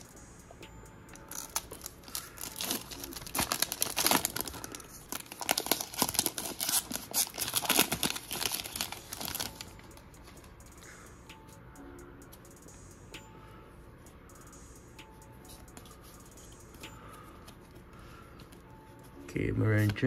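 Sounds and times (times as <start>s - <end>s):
wrapper crinkling and tearing: 1.3s - 9.7s.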